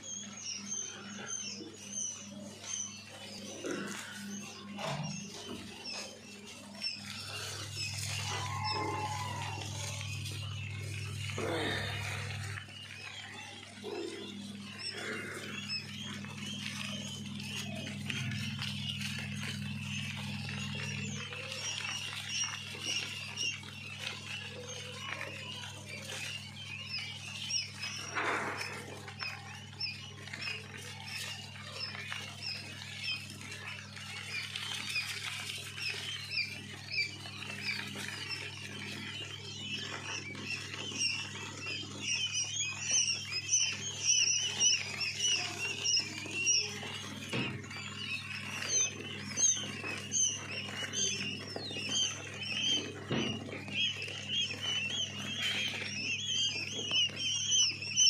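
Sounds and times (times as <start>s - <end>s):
low hum: 0.0s - 25.7s
chicks peeping: 0.0s - 58.0s.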